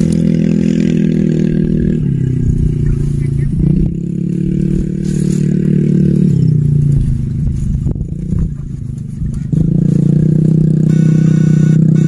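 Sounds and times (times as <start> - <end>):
electric shocker buzzing: 10.0 - 12.0.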